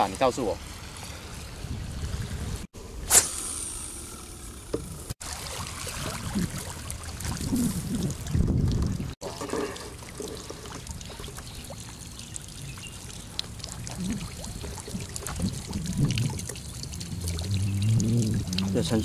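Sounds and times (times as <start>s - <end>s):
fish splashing in water: 5.2s - 8.4s, 9.2s - 19.0s
water wash: 5.2s - 19.0s.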